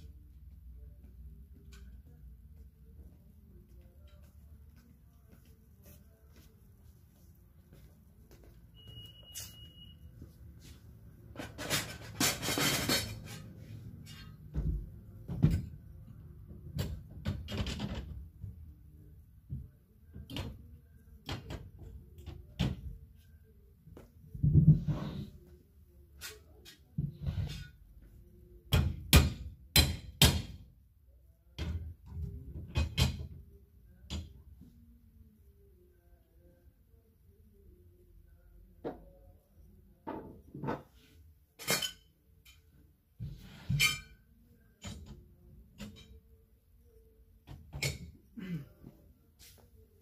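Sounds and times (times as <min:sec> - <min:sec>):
high beep: 0:08.7 - 0:10.2.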